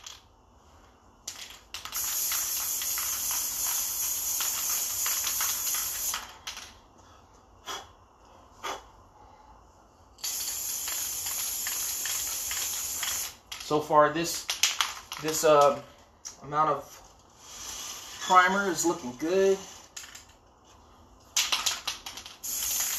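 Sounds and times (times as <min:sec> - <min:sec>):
aerosol spray can spraying: 0:01.8 - 0:06.3, 0:10.2 - 0:13.4, 0:22.4 - 0:22.9.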